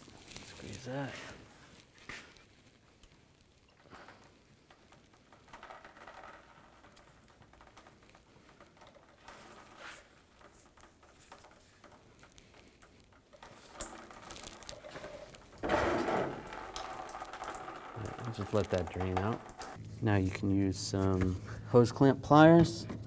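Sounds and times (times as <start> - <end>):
coolant dripping into pan: 0.0 - 19.9.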